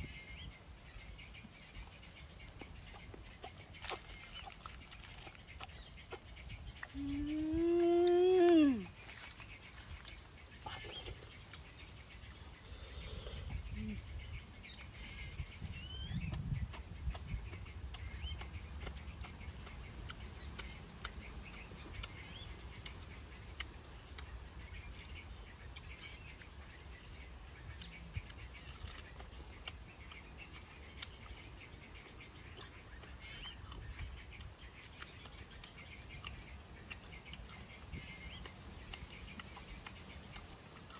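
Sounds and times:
birds chirping: 0.0 - 40.9
leaves being handled: 7.6 - 10.6.

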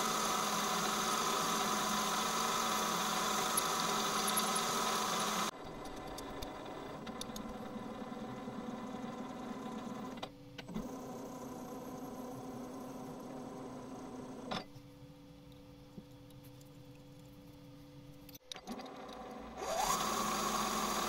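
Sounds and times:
drill boring into plastic: 0.0 - 5.5, 19.6 - 21.0
lathe spindle running: 0.0 - 5.5, 19.6 - 21.0
quiet steady hum: 11.7 - 18.5.

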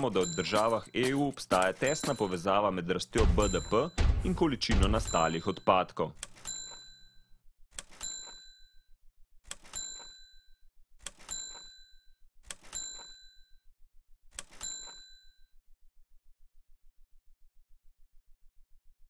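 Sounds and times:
bell-like ding: 3.2 - 5.7.

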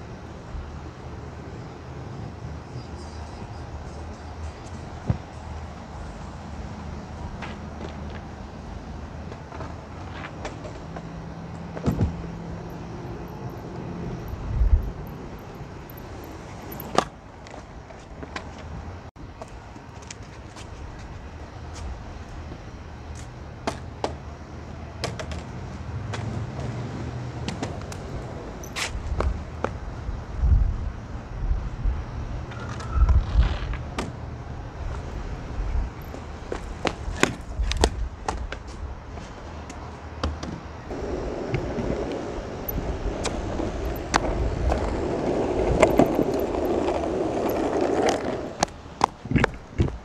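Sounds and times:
skateboard wheels rolling on concrete: 0.0 - 50.0
skateboard clicks and knocks: 9.1 - 14.7, 15.4 - 18.7, 25.0 - 29.8, 39.6 - 50.0.

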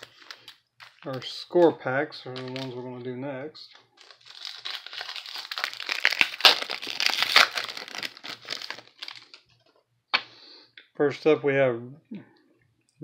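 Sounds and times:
plastic wrapper crinkling: 0.0 - 1.7, 2.3 - 2.8, 3.8 - 9.8.

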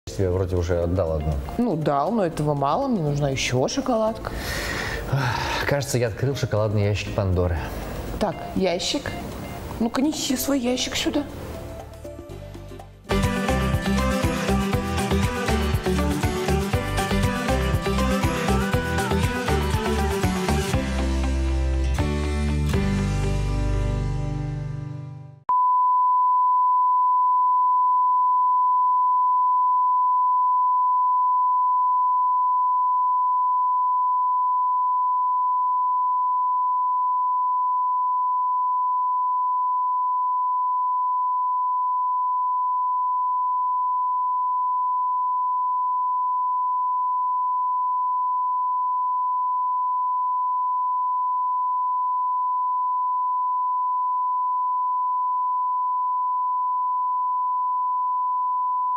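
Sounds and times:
music: 0.1 - 4.0, 8.2 - 25.4.

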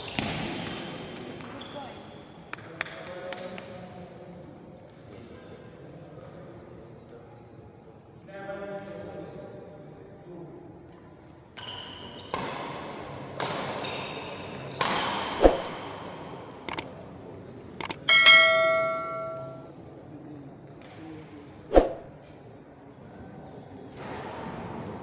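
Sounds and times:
bell ding: 17.8 - 19.6.

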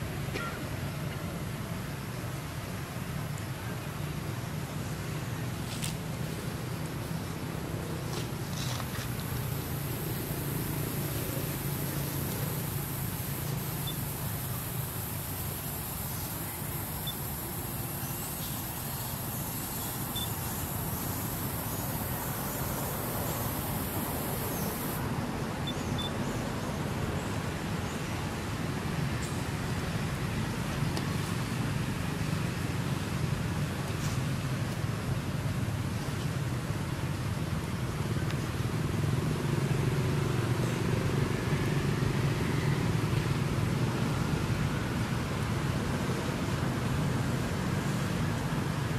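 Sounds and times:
high hiss: 0.1 - 25.2
vehicle engine humming: 4.0 - 25.1.

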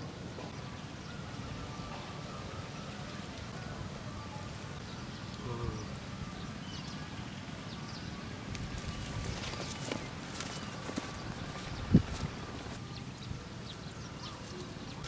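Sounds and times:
footsteps on sandy ground: 8.6 - 13.0.

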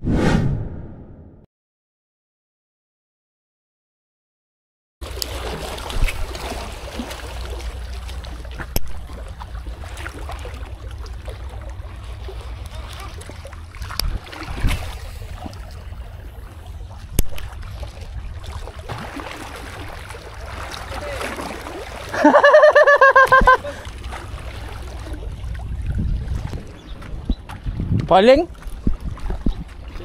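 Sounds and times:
wind rumbling on microphone: 13.0 - 18.7, 23.2 - 30.0.

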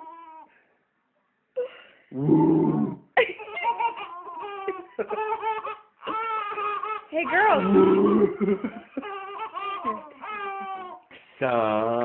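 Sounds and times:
baby laughing: 3.2 - 11.1.

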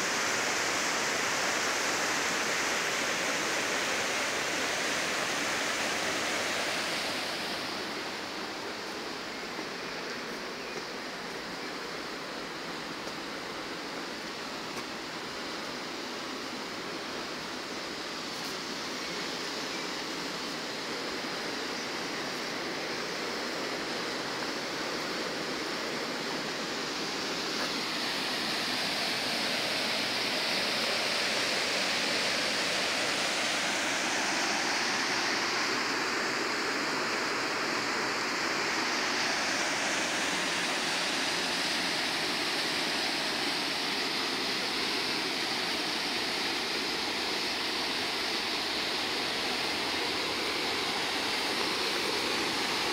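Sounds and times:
river water rushing over rocks: 0.0 - 52.9.

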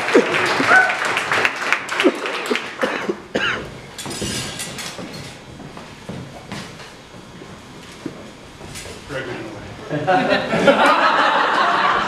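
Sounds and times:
audience applause: 0.0 - 3.3.

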